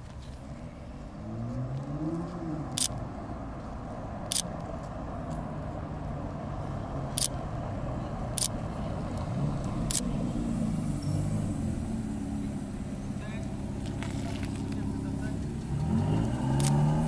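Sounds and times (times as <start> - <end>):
car engine rumble: 0.0 - 17.0
tyre noise on road: 0.0 - 17.0
sharp clicks: 2.7 - 3.0, 4.2 - 4.7, 8.4 - 8.6, 9.9 - 10.1, 16.5 - 16.8.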